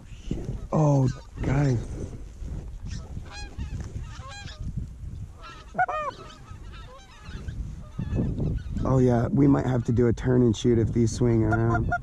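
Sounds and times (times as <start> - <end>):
geese honking: 3.3 - 4.6, 5.4 - 8.8.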